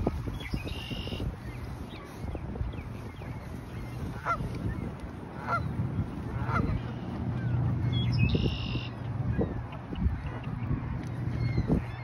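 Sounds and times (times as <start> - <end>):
geese honking: 3.9 - 12.0.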